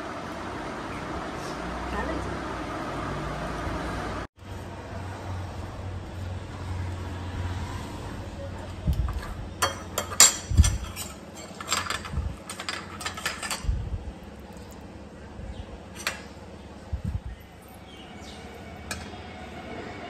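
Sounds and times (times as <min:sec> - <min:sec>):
utensils clinking on dishes: 0:09.0 - 0:13.7, 0:15.9 - 0:16.4, 0:17.6 - 0:19.4.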